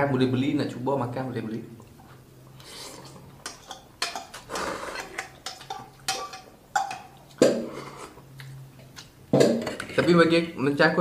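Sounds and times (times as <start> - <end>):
person sipping broth: 1.8 - 6.0, 7.1 - 8.6
person chewing and slurping: 1.8 - 9.2
cutlery clicking on bowl: 3.4 - 7.1.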